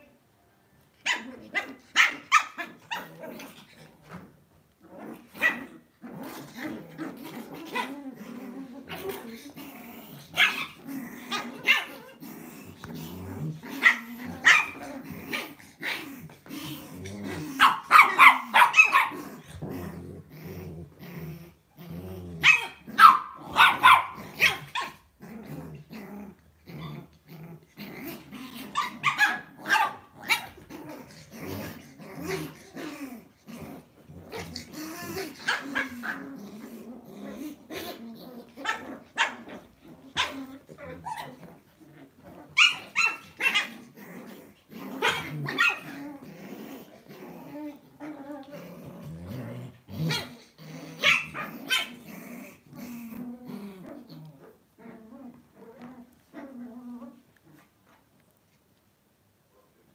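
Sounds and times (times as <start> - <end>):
dogs barking and yipping: 1.0 - 3.2, 13.8 - 15.4, 17.6 - 19.2, 22.4 - 25.0, 28.7 - 30.7, 42.4 - 43.8, 45.0 - 46.0, 51.0 - 52.0
dogs growling: 1.1 - 58.0.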